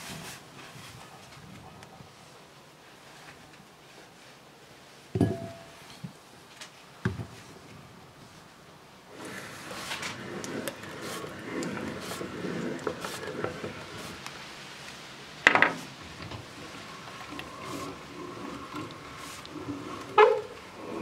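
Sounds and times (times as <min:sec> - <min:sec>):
hand-cranked meat grinder grinding: 0:09.2 - 0:14.4, 0:16.2 - 0:21.0.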